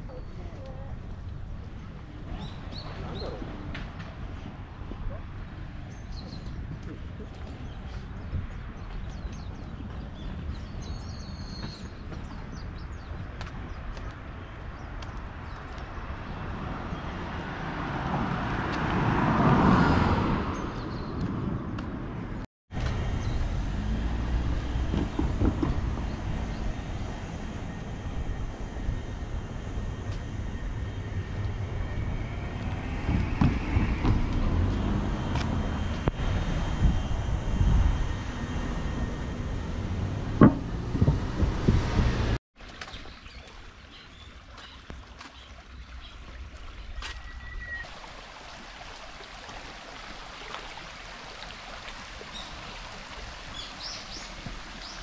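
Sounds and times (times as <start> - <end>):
traffic rumble: 0.0 - 55.0
vehicle passing: 16.3 - 22.2, 22.8 - 42.4
short knocks: 40.3 - 42.3.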